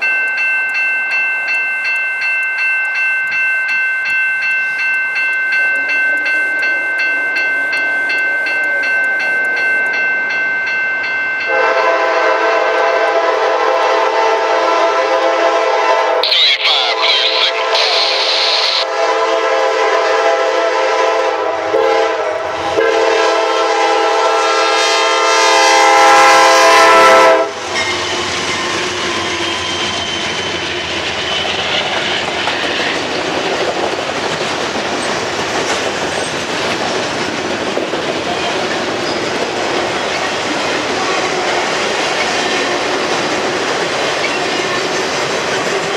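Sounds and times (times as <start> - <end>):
locomotive horn blasts: 11.5 - 16.2, 18.6 - 28.0.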